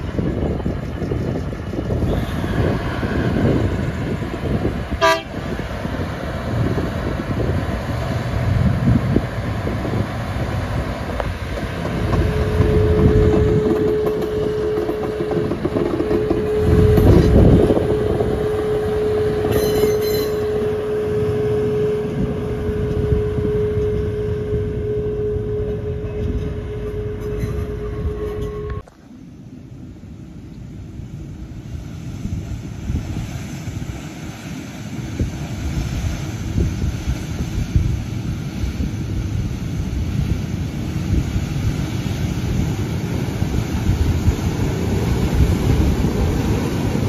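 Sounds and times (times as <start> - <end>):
steady high whine: 0.0 - 32.2
diesel locomotive engine: 0.0 - 47.0.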